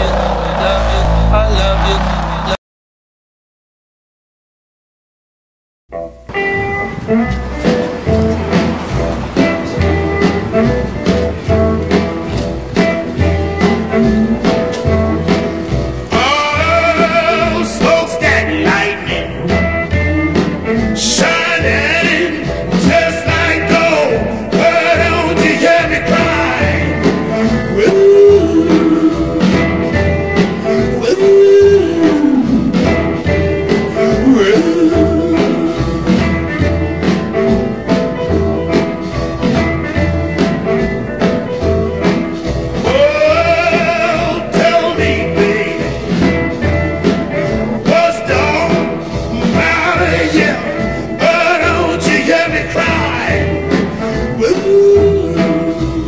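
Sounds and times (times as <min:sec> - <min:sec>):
song with sung vocal and beat: 0:15.5 - 0:19.5, 0:20.8 - 0:36.6, 0:42.8 - 0:46.3, 0:47.3 - 0:56.0.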